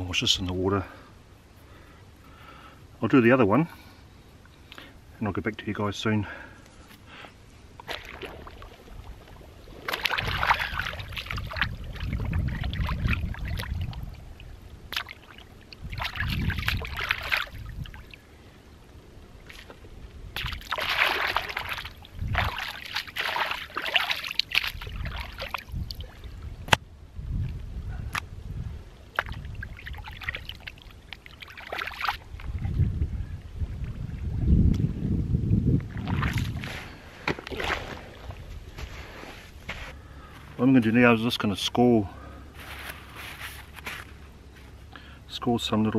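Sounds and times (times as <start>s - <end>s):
hands splashing fish in water: 7.8s - 14.0s, 14.9s - 18.1s, 20.4s - 26.0s, 29.2s - 32.2s.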